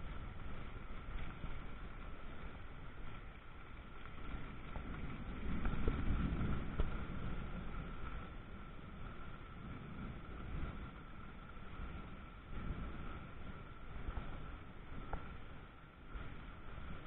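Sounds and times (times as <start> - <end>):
thunderstorm rumble: 4.4 - 17.0.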